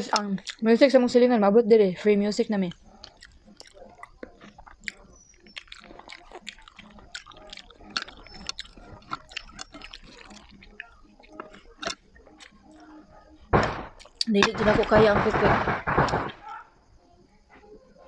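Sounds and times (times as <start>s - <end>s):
mouth clicks and smacks: 0.0s - 0.7s, 2.6s - 14.4s
wet chewing: 0.0s - 1.0s, 2.5s - 14.9s.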